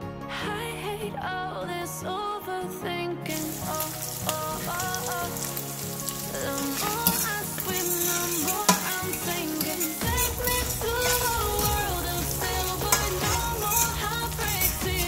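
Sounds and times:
pop music: 0:00.0 - 0:15.0
vegetables sizzling in oil: 0:03.4 - 0:15.0
utensil clicking against pan: 0:06.5 - 0:15.0.

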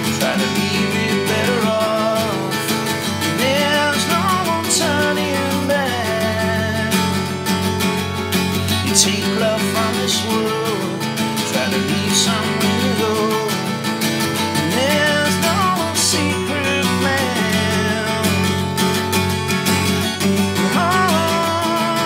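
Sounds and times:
acoustic guitars playing: 0:00.0 - 0:22.0.

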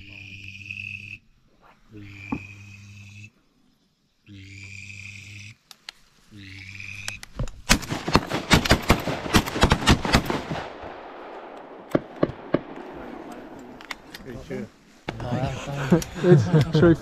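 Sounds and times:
shotgun shots with echoes: 0:07.7 - 0:13.8.

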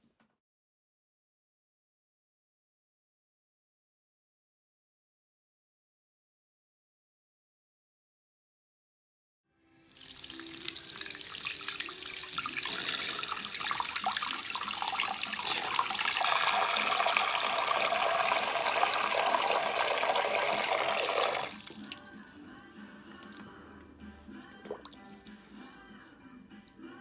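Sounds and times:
tap water splashing into sink: 0:09.9 - 0:22.0.

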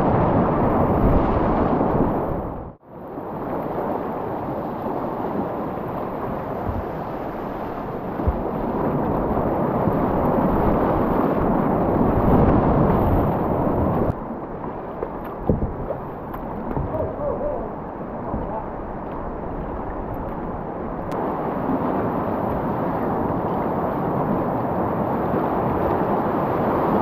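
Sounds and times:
softer river flow: 0:00.0 - 0:27.0
whitewater rushing: 0:03.2 - 0:27.0
dull knocks on kayak: 0:08.2 - 0:08.5, 0:15.4 - 0:17.0.

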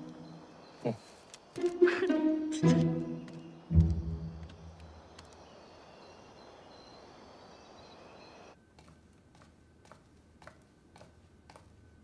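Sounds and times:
faint clicks: 0:02.6 - 0:05.5.

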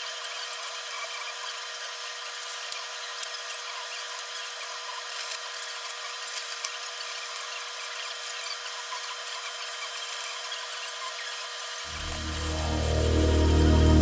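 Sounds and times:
steady high hiss: 0:11.9 - 0:14.0.

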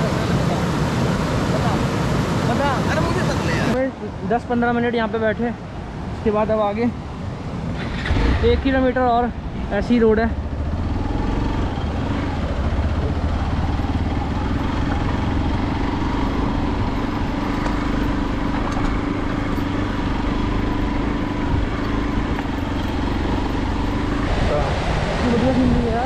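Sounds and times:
road and wind noise: 0:00.0 - 0:26.0
vehicle engine running: 0:07.9 - 0:26.0.

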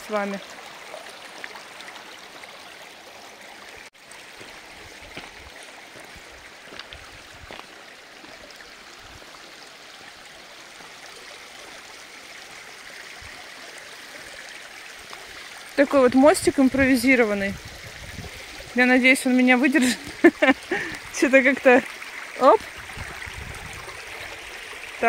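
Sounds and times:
stream running over stones: 0:00.0 - 0:25.0
footsteps on pebbles: 0:04.3 - 0:08.4.

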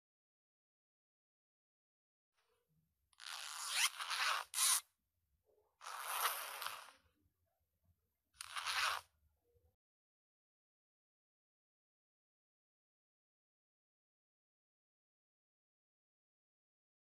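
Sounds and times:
zipper pulled open and closed: 0:03.2 - 0:04.9, 0:05.8 - 0:07.1, 0:08.4 - 0:09.2.

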